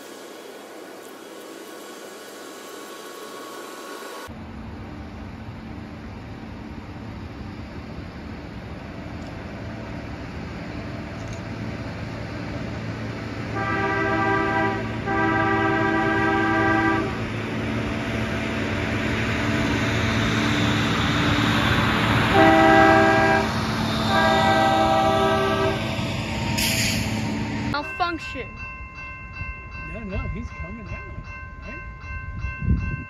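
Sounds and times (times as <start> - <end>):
rail maintenance machine running: 0.0 - 31.7
train horn blasts: 13.5 - 17.2, 22.3 - 26.0.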